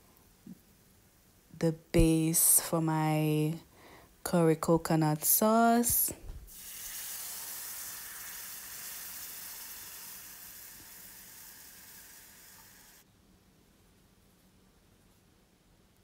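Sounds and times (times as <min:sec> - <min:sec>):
liquid sizzling in hot pan: 0:06.5 - 0:13.0.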